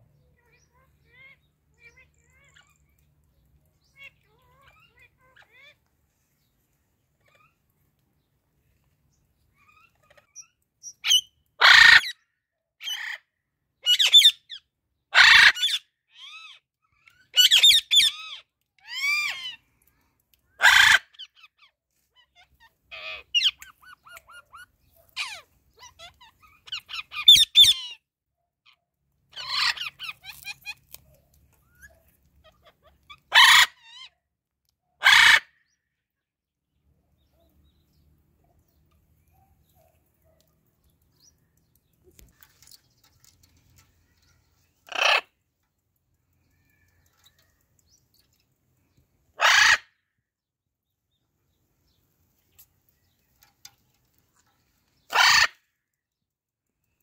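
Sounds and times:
macaw harsh calls: 49.4 - 50.0, 55.1 - 55.6.

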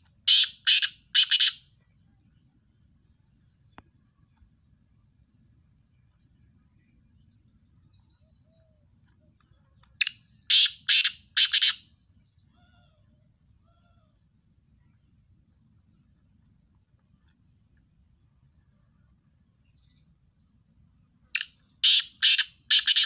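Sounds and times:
small birds chirping: 0.0 - 23.0
francolin harsh grating call: 0.3 - 1.6, 21.8 - 23.0.

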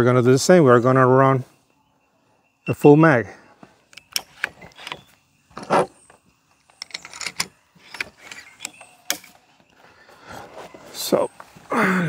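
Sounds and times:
air rifle lever clicks: 3.9 - 5.1, 6.6 - 9.4.

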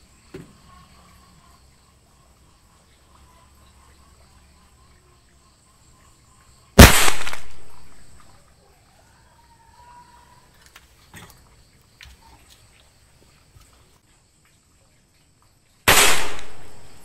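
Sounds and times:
sharp bang of pellet exploding: 6.8 - 7.9, 15.9 - 17.0.

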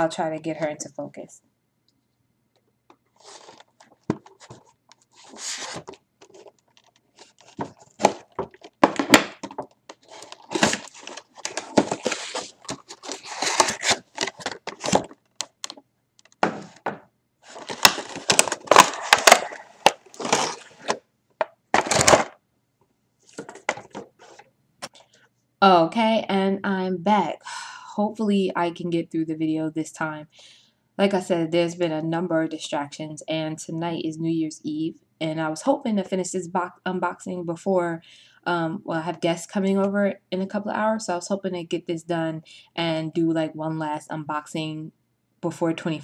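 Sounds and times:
cardboard rustling and scraping: 3.1 - 15.2, 16.4 - 21.0.

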